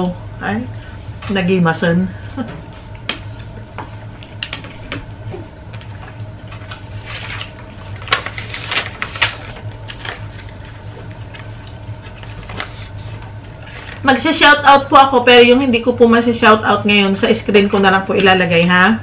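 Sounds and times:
steady low hum: 0.0s - 19.0s
paper rustling: 6.5s - 14.1s.

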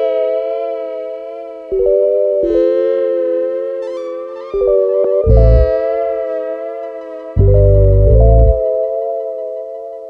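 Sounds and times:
held keyboard chords: 1.7s - 9.6s
deep bass note: 5.3s - 5.8s, 7.4s - 8.6s.

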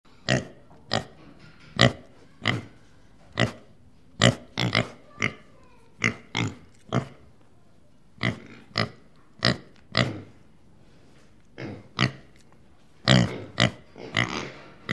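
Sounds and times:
pig grunting: 4.2s - 7.2s, 8.2s - 10.4s, 11.6s - 12.3s, 13.0s - 14.9s.

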